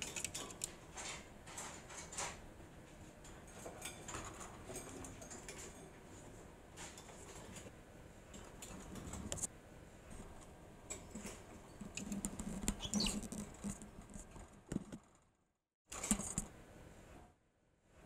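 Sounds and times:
cockatiel chirp: 12.7 - 13.2.

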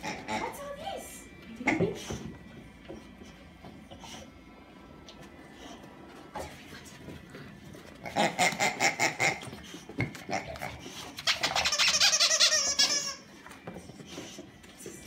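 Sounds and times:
dog toy squeaking: 11.2 - 13.4.

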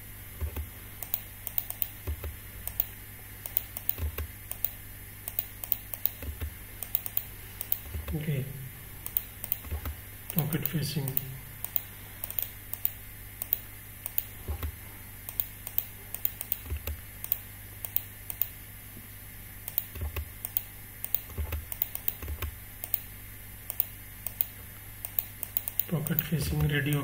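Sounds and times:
keyboard and mouse clicking: 0.4 - 8.2, 9.0 - 18.6, 19.6 - 23.1, 23.7 - 27.0
soft low thumps: 6.2 - 6.6, 14.4 - 14.8.

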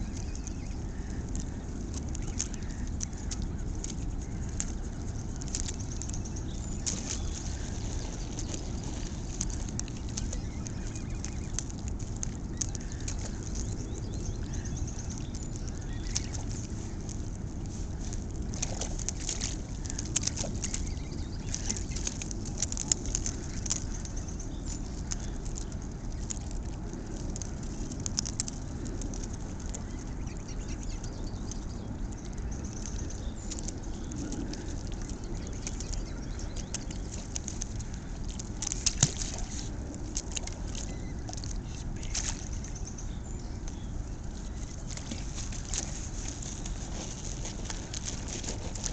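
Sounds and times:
steady low rumble: 0.0 - 48.9
sharp clicks and taps on rocks: 35.4 - 41.4.

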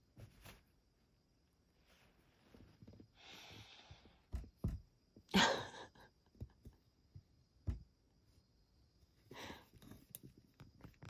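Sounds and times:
breathy exhales: 3.2 - 4.3.

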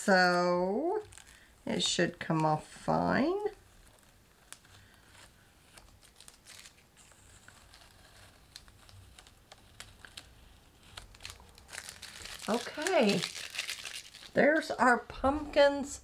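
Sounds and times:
tape peeling off paper: 3.7 - 14.4.

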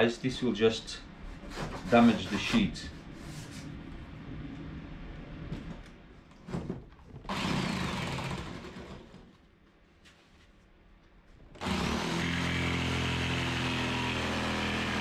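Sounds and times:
jigsaw cutting plywood: 7.2 - 9.3, 11.6 - 15.0.

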